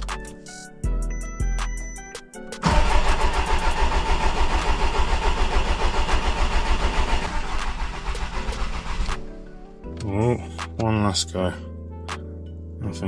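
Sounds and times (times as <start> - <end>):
diesel engine cranking and starting: 2.6 - 9.2.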